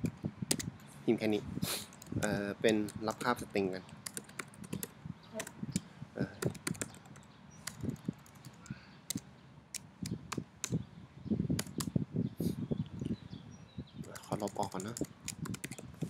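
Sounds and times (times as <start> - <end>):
typing on computer keyboard: 0.0 - 0.7, 2.7 - 5.5, 6.4 - 9.2, 11.6 - 11.9, 14.0 - 15.9.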